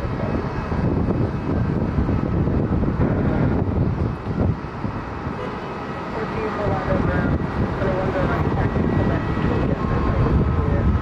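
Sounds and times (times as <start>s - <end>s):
jet engines rumbling: 0.0s - 11.0s
wind buffeting microphone: 0.0s - 11.0s.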